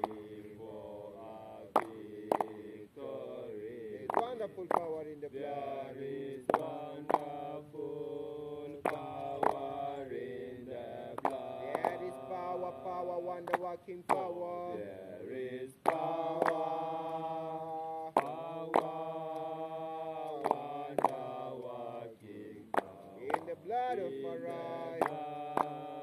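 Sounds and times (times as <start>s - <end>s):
people chanting slowly: 0.0s - 26.0s.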